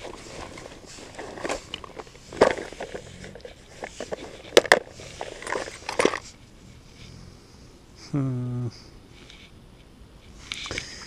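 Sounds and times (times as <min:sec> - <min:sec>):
rustles and knocks of handling gear: 0:00.0 - 0:06.4.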